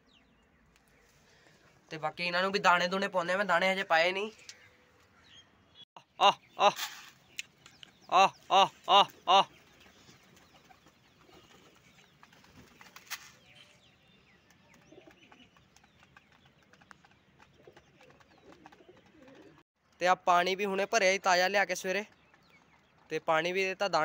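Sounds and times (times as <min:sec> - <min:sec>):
pigeons pecking grain: 0:09.1 - 0:13.5, 0:14.2 - 0:20.0.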